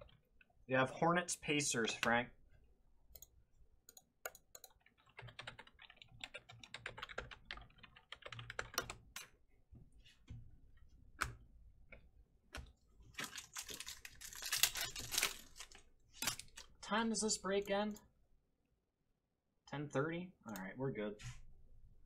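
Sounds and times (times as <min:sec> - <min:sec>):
wrapper tearing and crinkling: 0:13.2 - 0:16.6.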